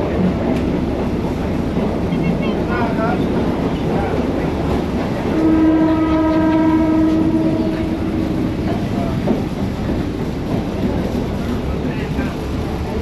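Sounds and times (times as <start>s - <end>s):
train rumbling on rails: 0.0s - 13.0s
train horn blast: 5.2s - 8.4s.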